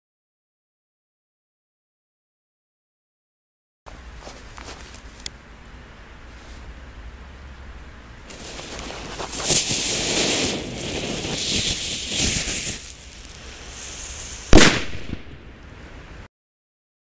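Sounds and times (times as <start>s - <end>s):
firework sparks hissing: 8.2s - 16.2s
firework bang: 8.3s - 15.6s.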